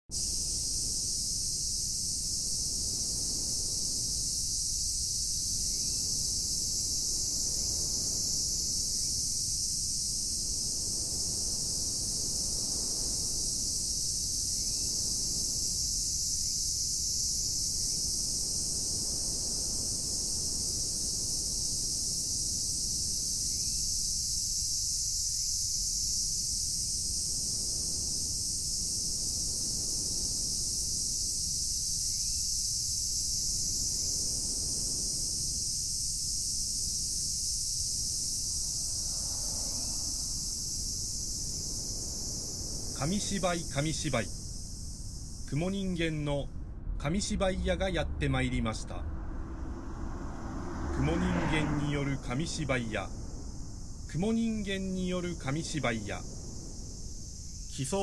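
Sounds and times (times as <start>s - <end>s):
insects shrilling: 0.1s - 58.0s
low rumble: 38.0s - 54.6s.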